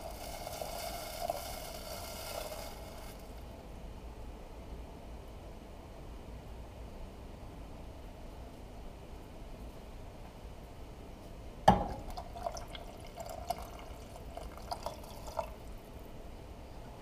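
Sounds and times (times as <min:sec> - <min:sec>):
water pouring into a pot: 0:00.0 - 0:03.5, 0:11.7 - 0:15.8
cup knocking against pot: 0:11.7 - 0:12.2.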